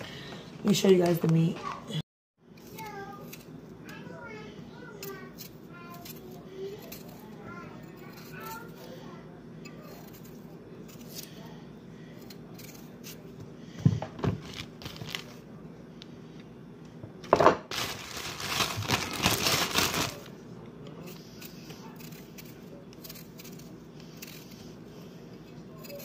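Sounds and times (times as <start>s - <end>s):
knife scraping potato: 2.6s - 3.6s, 5.0s - 9.0s, 9.6s - 13.3s, 21.0s - 26.0s.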